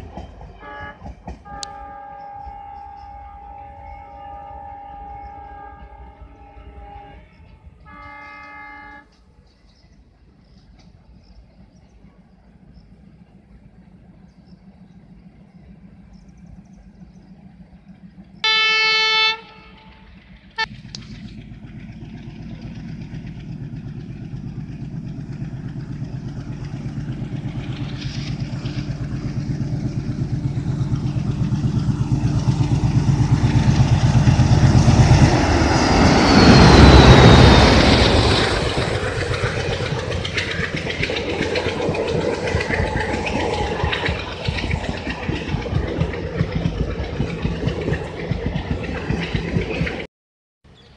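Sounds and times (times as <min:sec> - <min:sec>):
diesel locomotive horn blast: 0:00.0 - 0:09.3, 0:18.4 - 0:21.1, 0:22.4 - 0:41.9
locomotive engine: 0:00.0 - 0:50.1
passenger coaches rolling by: 0:00.0 - 0:50.1.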